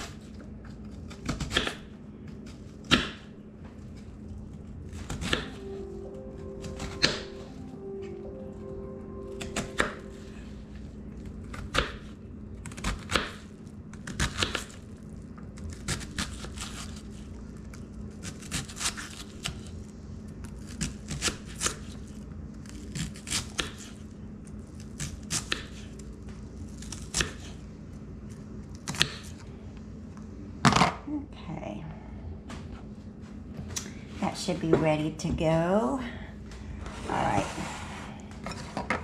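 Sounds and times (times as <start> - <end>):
faint low hum: 0.0 - 39.0
knife chopping on wooden board: 2.8 - 3.3.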